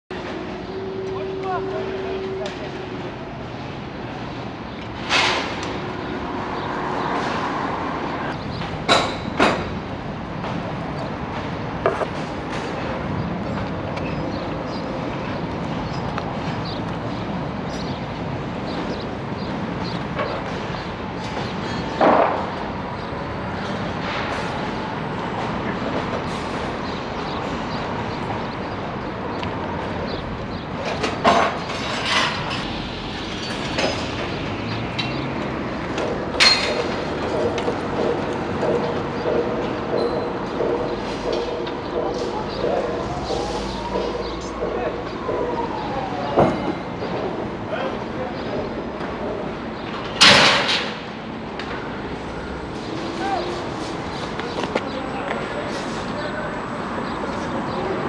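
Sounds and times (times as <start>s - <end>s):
construction site rumble: 0.1s - 58.0s
knocks and clanks: 8.3s - 10.7s, 30.8s - 47.4s, 49.0s - 51.8s.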